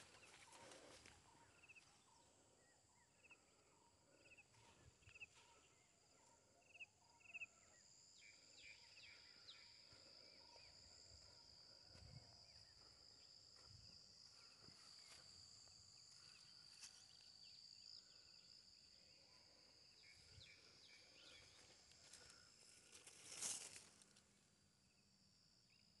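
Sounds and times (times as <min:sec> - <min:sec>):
insects trilling: 0:00.0 - 0:26.0
rustle of leaves: 0:22.9 - 0:24.2.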